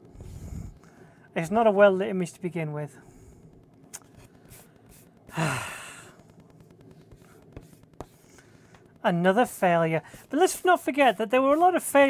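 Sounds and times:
woman sighing: 5.3 - 6.2.

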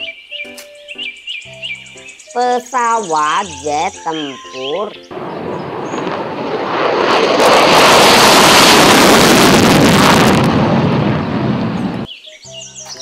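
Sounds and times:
music: 0.0 - 5.2, 12.1 - 13.0
jet engine roaring: 5.1 - 12.1.

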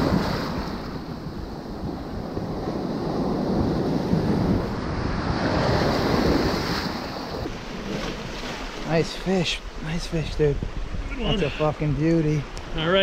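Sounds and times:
surf washing up beach: 0.0 - 13.0
wind buffeting microphone: 0.0 - 13.0.

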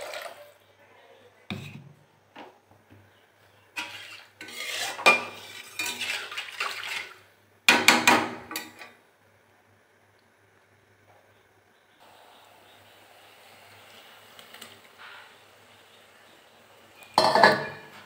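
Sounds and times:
metal spatula scraping steel pan: 3.8 - 7.2.

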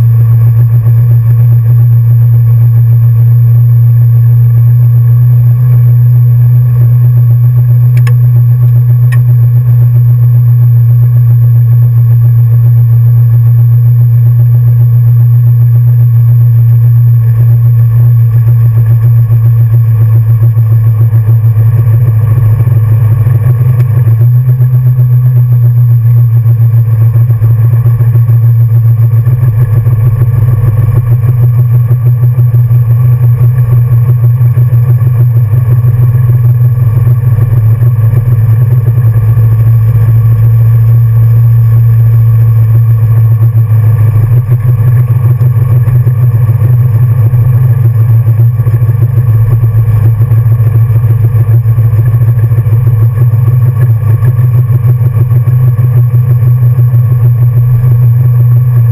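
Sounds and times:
car engine low drone: 0.0 - 58.9.

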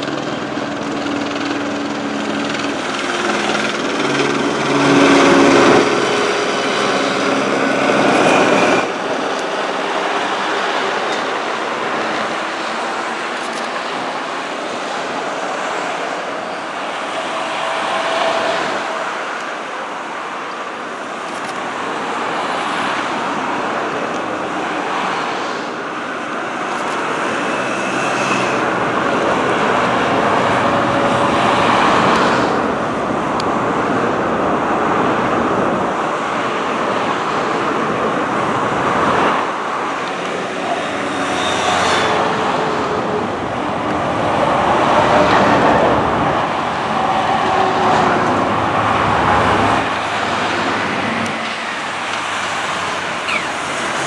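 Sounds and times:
low engine drone: 0.0 - 21.3
motorway traffic driving past: 0.0 - 54.0.

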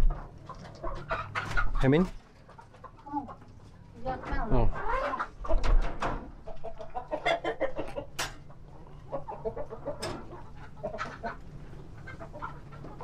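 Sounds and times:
hens clucking: 0.0 - 13.0.

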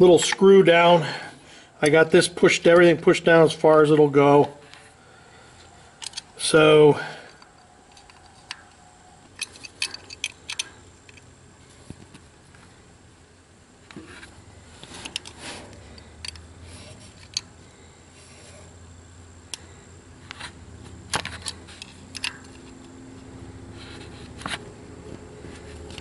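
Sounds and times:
low steady hum: 0.0 - 26.0
small metal clicks and scrapes: 6.0 - 6.4, 7.2 - 12.6, 13.9 - 17.5, 20.3 - 23.0.

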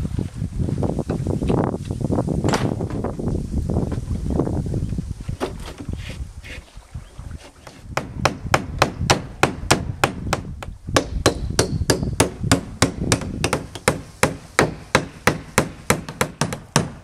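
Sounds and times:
hammer driving nails into wood: 8.0 - 17.0.

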